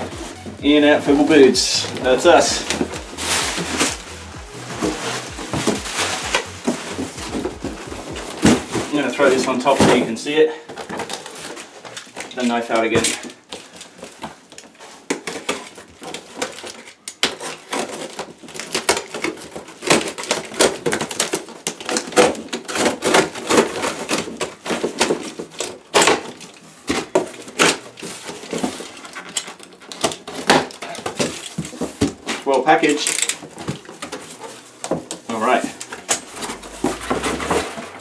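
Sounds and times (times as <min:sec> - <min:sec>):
tape and cardboard crackling: 0:00.0 - 0:38.0.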